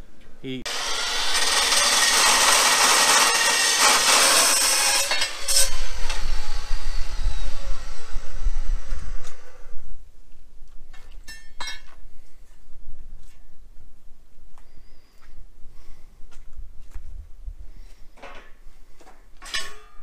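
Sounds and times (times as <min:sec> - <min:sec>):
chop saw cutting steel: 0:00.7 - 0:09.6.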